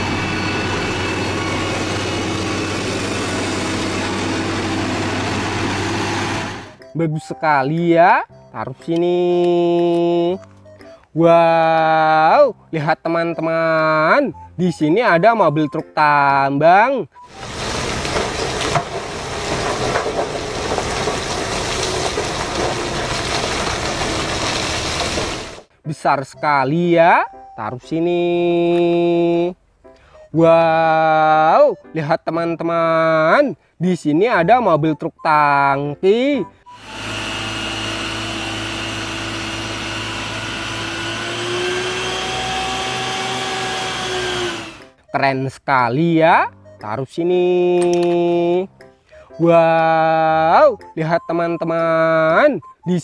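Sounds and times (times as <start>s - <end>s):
rock and coal pouring from truck: 17.2s - 25.7s.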